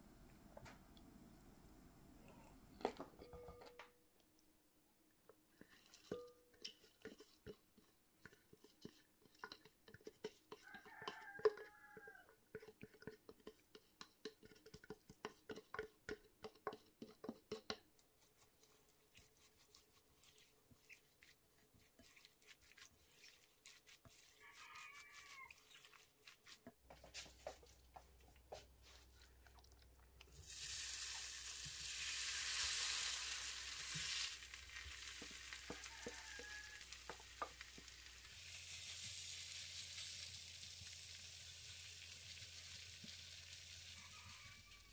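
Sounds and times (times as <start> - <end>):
spatula scraping glass bowl: 5.6 - 11.8, 18.7 - 26.8
batter sizzling in frying pan: 30.3 - 44.9.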